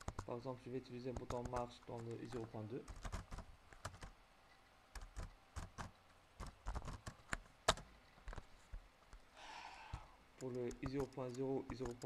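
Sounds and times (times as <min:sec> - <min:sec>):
computer keyboard typing: 0:00.0 - 0:00.4, 0:01.0 - 0:04.1, 0:04.9 - 0:08.4, 0:10.4 - 0:12.0.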